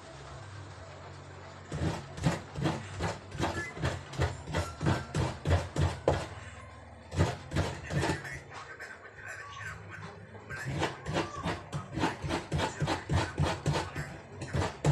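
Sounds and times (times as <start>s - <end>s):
coconut grating rasping strokes: 1.7s - 6.4s, 7.1s - 8.3s, 10.5s - 14.9s.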